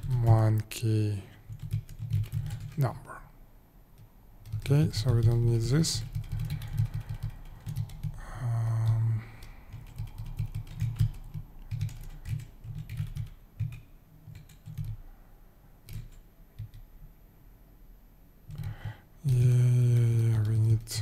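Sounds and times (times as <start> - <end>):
person humming: 8.2 - 9.5, 19.2 - 21.0.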